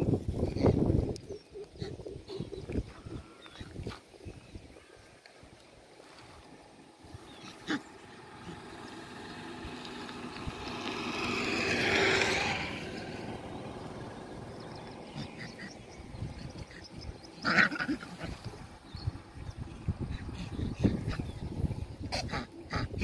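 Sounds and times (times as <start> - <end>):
vehicle passing on road: 6.0 - 17.5.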